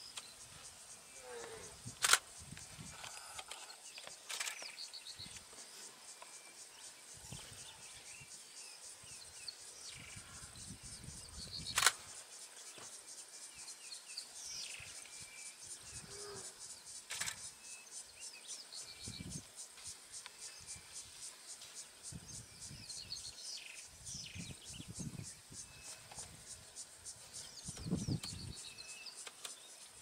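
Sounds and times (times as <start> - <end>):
insects trilling: 0.0 - 30.0
sharp clicks: 2.0 - 2.2, 11.7 - 12.0.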